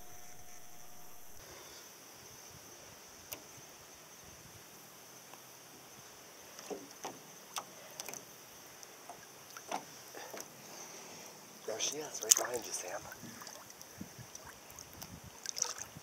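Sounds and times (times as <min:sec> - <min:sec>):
faint high-pitched hum: 0:00.0 - 0:06.4
water lapping against boat hull: 0:08.9 - 0:10.6, 0:11.8 - 0:16.0
soft splashes: 0:11.7 - 0:16.0.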